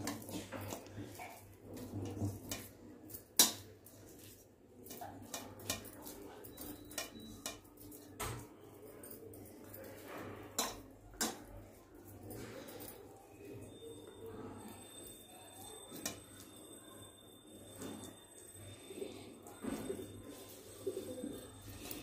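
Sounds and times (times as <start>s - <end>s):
clinks against steel bowl: 4.8s - 11.6s.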